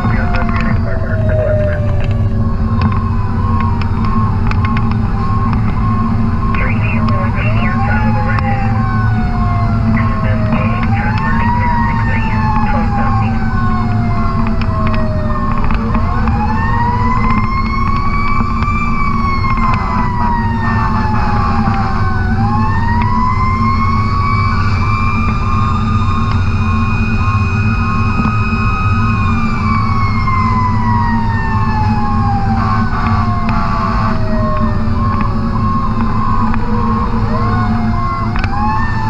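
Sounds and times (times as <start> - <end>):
diesel engine rumbling: 0.0 - 39.0
fire truck siren wailing: 0.0 - 39.0.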